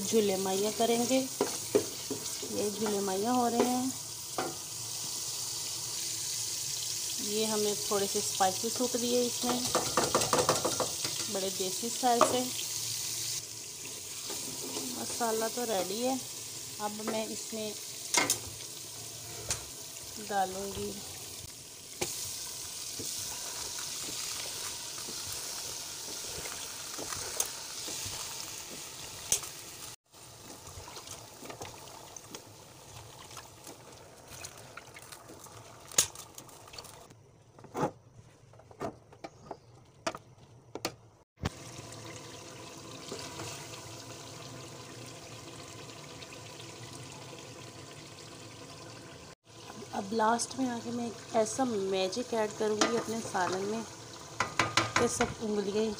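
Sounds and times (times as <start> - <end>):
spices sizzling in a pot: 0.0 - 37.1, 41.4 - 55.9
ladle knocking against pot: 54.4 - 55.4.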